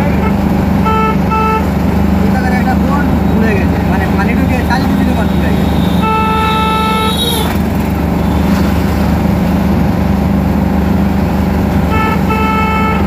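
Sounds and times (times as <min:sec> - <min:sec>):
vehicle horn honking: 0:00.0 - 0:01.7, 0:04.7 - 0:08.6, 0:11.9 - 0:13.0
vehicle engine and road noise: 0:00.0 - 0:13.0.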